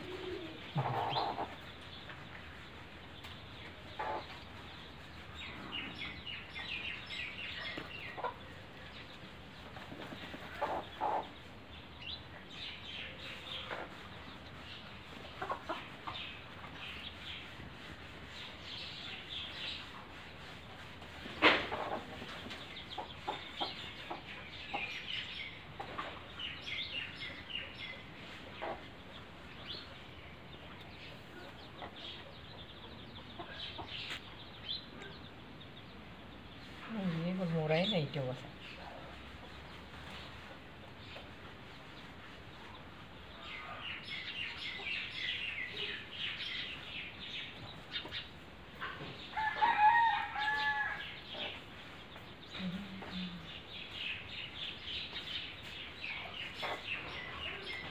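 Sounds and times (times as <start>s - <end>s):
chickens clucking: 0.0s - 11.9s, 12.9s - 35.5s, 38.7s - 49.4s, 51.2s - 57.9s
small birds chirping: 0.0s - 57.9s
rooster crowing: 49.4s - 51.0s.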